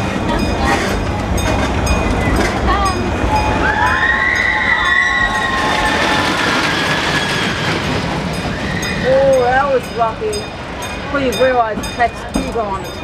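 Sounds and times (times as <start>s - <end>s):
train cars rumbling: 0.0s - 13.0s
train wheels squealing: 3.4s - 9.6s.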